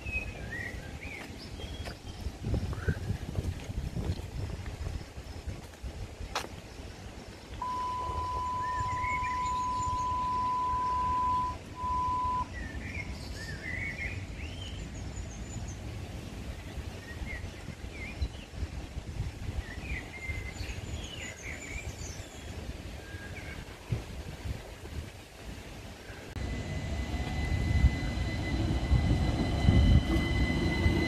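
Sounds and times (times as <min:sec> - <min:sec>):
small birds chirping: 0:06.6 - 0:15.8
low outdoor rumble: 0:07.4 - 0:13.2, 0:26.2 - 0:31.0
electronic beep: 0:07.6 - 0:12.5.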